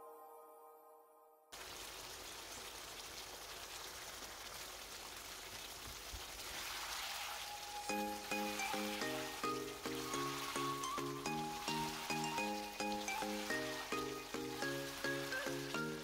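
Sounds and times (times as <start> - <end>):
gravy bubbling and sizzling: 1.6 - 16.0
plucked melody music: 7.9 - 16.0.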